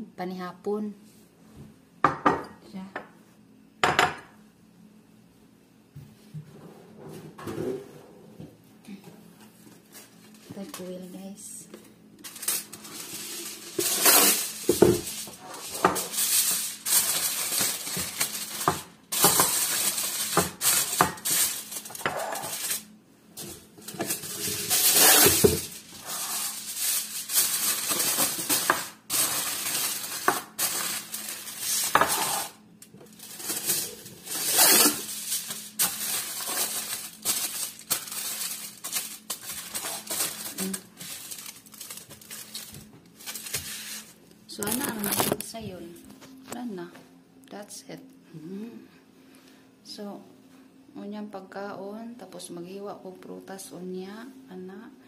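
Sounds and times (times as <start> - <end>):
foil containers crinkling and clattering: 12.2 - 45.6.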